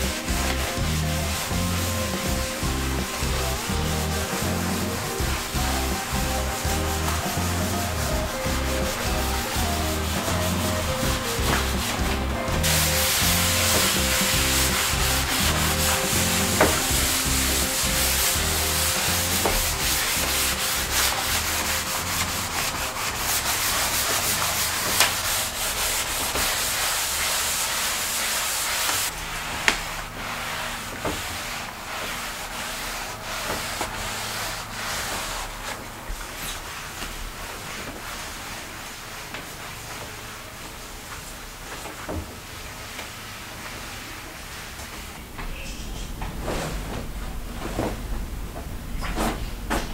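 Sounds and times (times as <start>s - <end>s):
background music with bass line: 0.0s - 25.6s
scrubbing glass shower screen: 0.0s - 39.2s.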